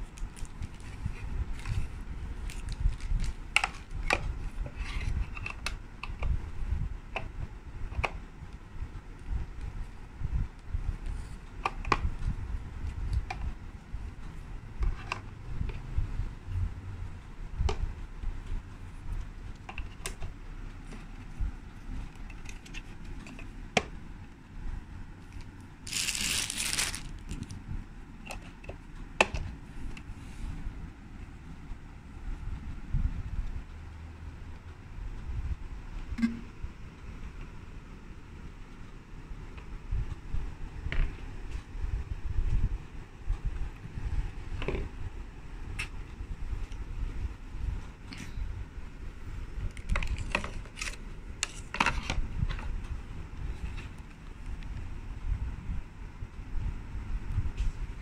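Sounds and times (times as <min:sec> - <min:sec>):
plastic rustle: 0:00.1 - 0:03.9, 0:25.8 - 0:27.6.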